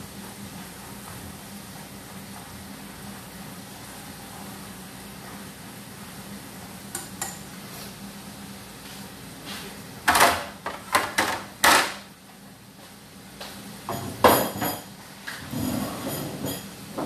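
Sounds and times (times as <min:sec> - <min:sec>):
pots and dishes clattering: 0:13.9 - 0:17.0.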